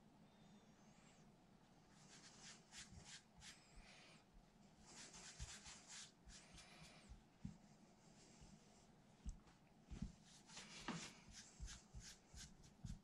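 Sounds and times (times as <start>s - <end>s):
hands rolling pasta dough: 4.9s - 13.0s.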